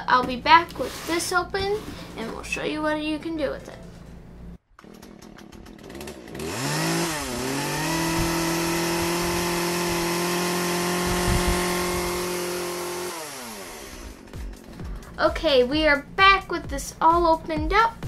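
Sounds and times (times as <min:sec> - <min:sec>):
chainsaw revving: 0:04.8 - 0:14.9.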